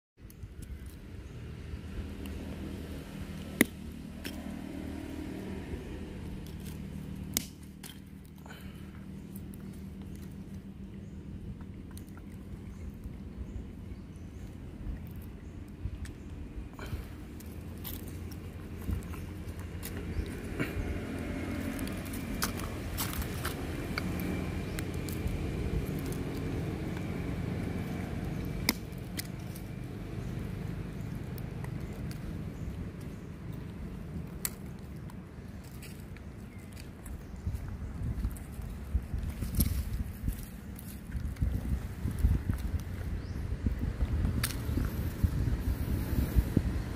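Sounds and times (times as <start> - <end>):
steady low hum: 0.2 - 46.9
steady low rumble: 0.2 - 46.9
stone cracking seeds: 2.1 - 5.4, 6.0 - 10.6, 16.8 - 37.2.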